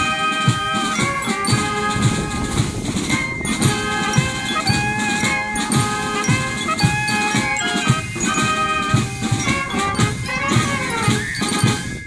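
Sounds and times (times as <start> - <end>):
brass band playing: 0.0 - 12.0
steady drum beat: 0.0 - 12.0.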